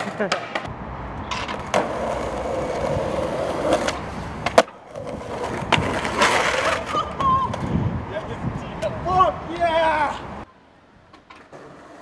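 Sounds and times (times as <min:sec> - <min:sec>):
skateboard wheels rolling on concrete: 0:00.0 - 0:12.0
skateboard clacking: 0:01.3 - 0:07.6.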